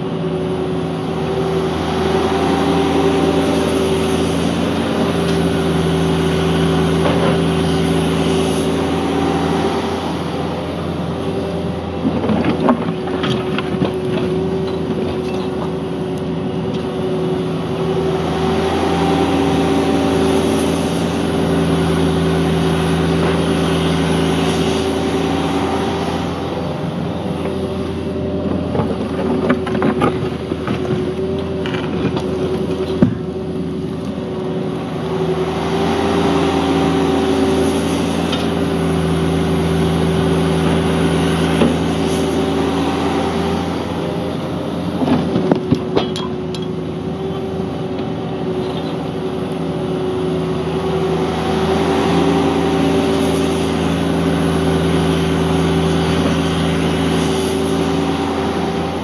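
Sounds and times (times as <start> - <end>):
excavator diesel engine: 0.0 - 59.0.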